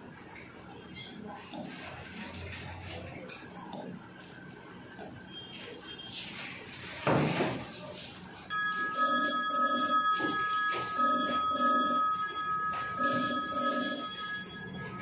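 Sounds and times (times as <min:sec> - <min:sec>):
phone ringtone ringing: 0:08.5 - 0:15.0.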